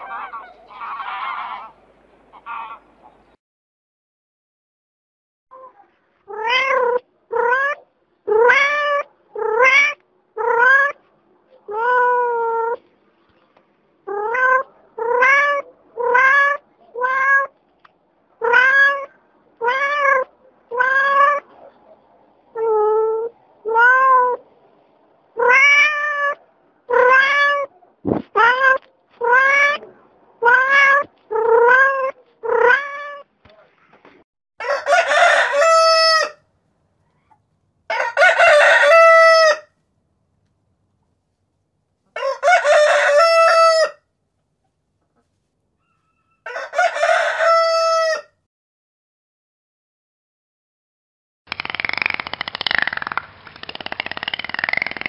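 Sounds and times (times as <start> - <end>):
cat meowing: 6.3 - 11.0, 14.1 - 17.6, 18.4 - 21.5, 22.6 - 24.4, 25.4 - 27.7, 28.4 - 33.3
rooster crowing: 34.6 - 36.4, 37.9 - 39.7, 42.2 - 44.0, 45.8 - 48.4.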